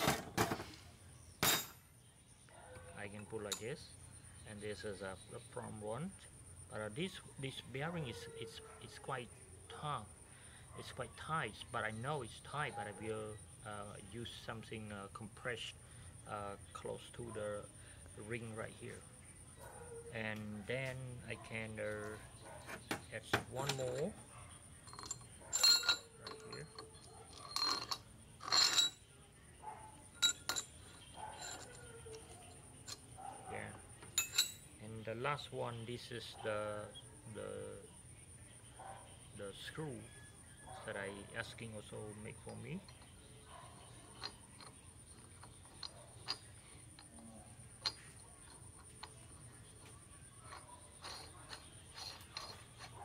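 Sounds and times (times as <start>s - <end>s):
steel parts clinking and scraping: 0.0s - 0.8s, 1.4s - 1.9s, 3.0s - 3.9s, 19.7s - 29.2s, 30.0s - 37.8s, 40.8s - 53.0s.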